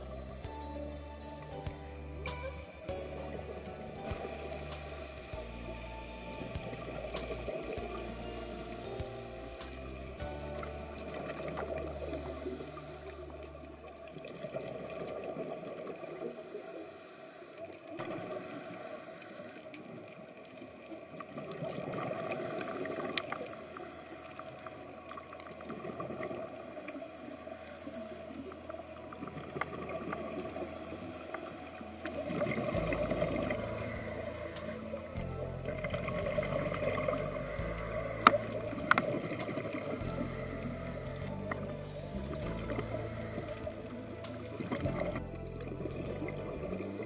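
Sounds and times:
whale song moans: 0:00.0 - 0:16.8, 0:21.5 - 0:47.0.

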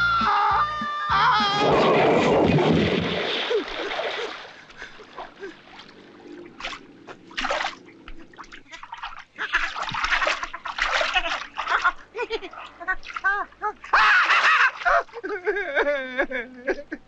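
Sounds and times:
person splashing into pond: 0:01.6 - 0:13.3
small splashes: 0:01.6 - 0:15.4
water sloshing: 0:01.9 - 0:15.5.

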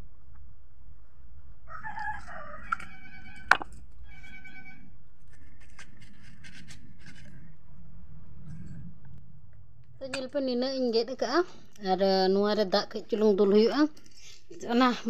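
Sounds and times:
rooster crowing: 0:01.6 - 0:04.8.

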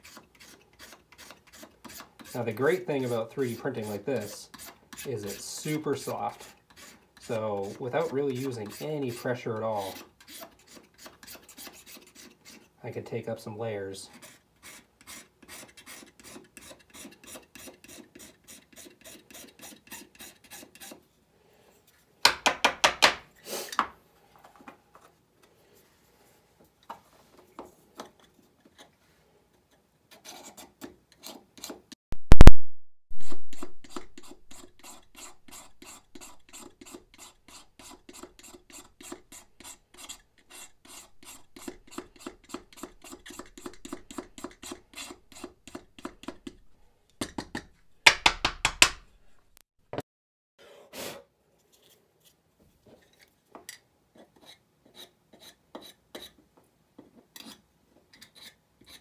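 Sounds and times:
knife scraping plastic: 0:00.0 - 0:12.7, 0:29.6 - 0:32.5, 0:33.2 - 0:46.7, 0:57.3 - 0:59.0.

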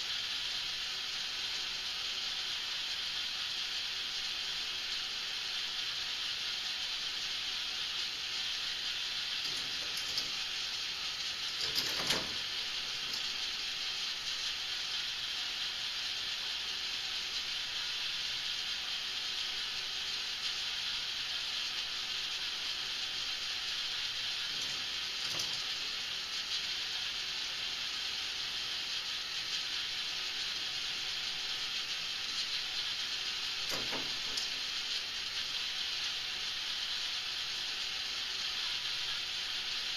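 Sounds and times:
balls rolling on plastic track: 0:06.6 - 0:16.7, 0:18.5 - 0:39.9.

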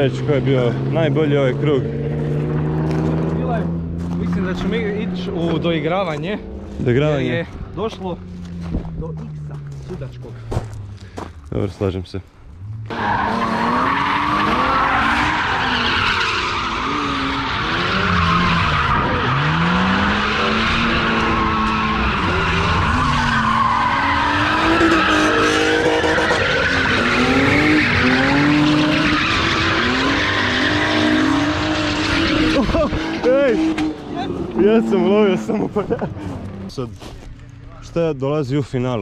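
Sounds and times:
car engines revving: 0:00.0 - 0:38.1
tyre squeal: 0:12.9 - 0:34.7.

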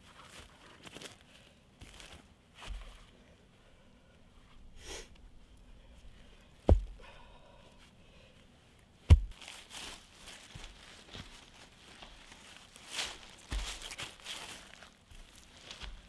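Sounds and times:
heavy deep thuds: 0:06.6 - 0:07.0, 0:09.1 - 0:09.4
dry leaves rustling: 0:09.1 - 0:16.0.

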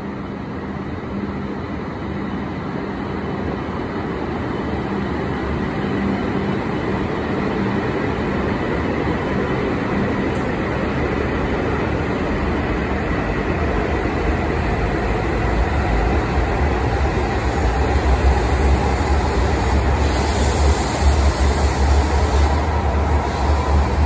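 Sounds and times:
train running rumble: 0:00.0 - 0:24.0.

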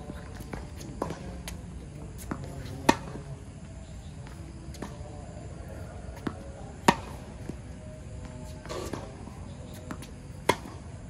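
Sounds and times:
racket striking tennis ball: 0:02.2 - 0:03.2, 0:06.2 - 0:07.2, 0:08.6 - 0:10.9.

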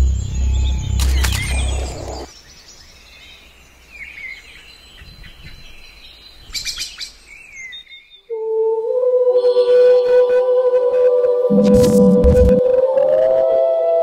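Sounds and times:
birds chirping: 0:00.0 - 0:08.3.

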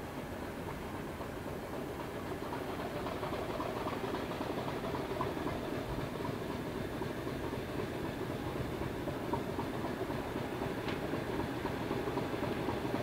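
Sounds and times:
diesel locomotive engines running: 0:00.0 - 0:13.0.

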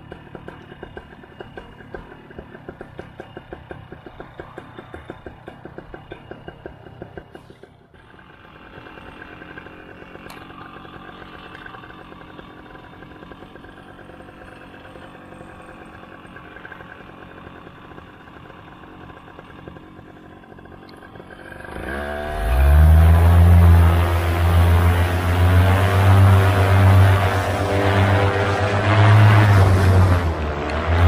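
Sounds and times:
paramotor engine revving up: 0:08.1 - 0:31.0.

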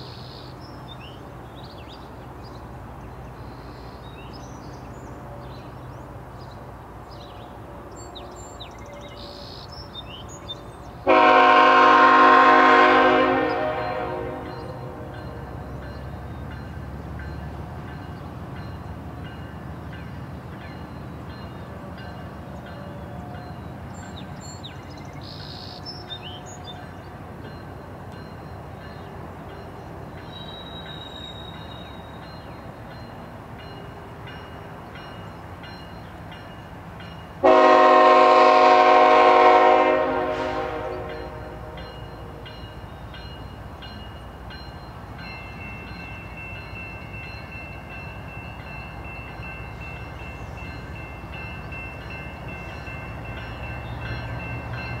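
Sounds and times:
diesel locomotive engine rumble: 0:00.0 - 0:55.0
train air horn blast: 0:11.0 - 0:15.1, 0:37.4 - 0:41.8.

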